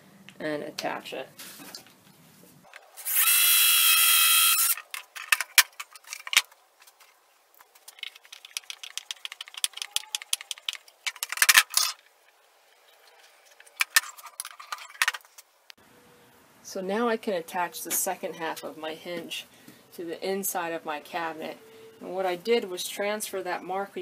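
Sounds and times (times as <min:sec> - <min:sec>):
cordless drill boring wood: 0:03.0 - 0:04.8
small clicks and rattles: 0:04.8 - 0:15.5.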